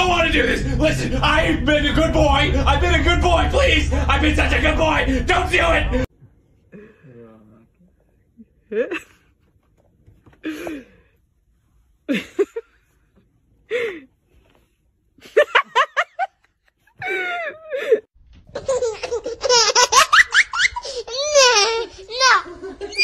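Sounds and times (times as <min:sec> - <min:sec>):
loud human laughter: 0:15.2 - 0:21.4, 0:22.4 - 0:23.0.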